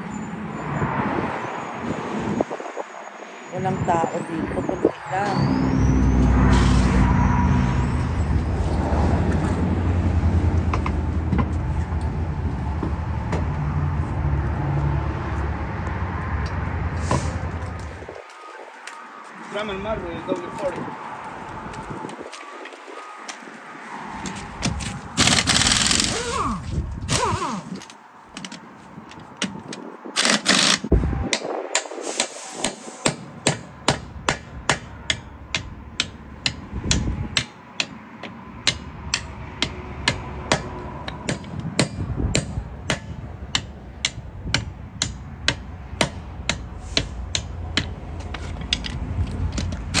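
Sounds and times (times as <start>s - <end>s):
hammer striking car wheel: 31.3s - 48.0s.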